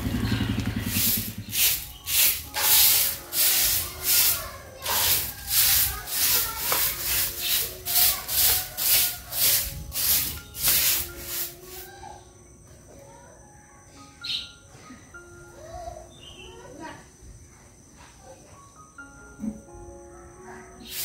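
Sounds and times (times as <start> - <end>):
broom sweeping ground: 0.7 - 12.0.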